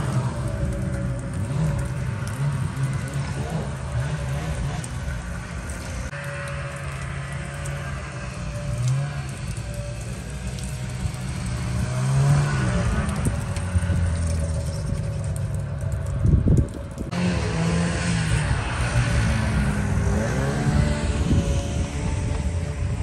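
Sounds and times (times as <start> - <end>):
snowmobile engine passing by: 6.1 - 14.6, 17.1 - 23.0.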